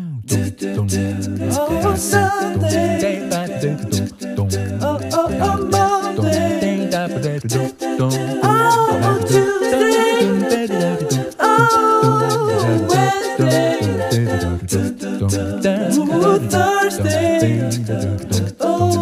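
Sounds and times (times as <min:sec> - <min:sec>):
person singing: 0:00.0 - 0:19.0
pulsing bass beat: 0:00.3 - 0:06.6.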